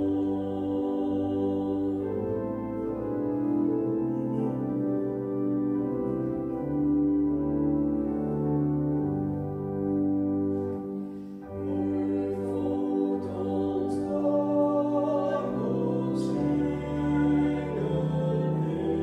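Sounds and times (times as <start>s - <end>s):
electronic organ playing a hymn: 0.0s - 19.0s
man and woman singing: 11.7s - 19.0s.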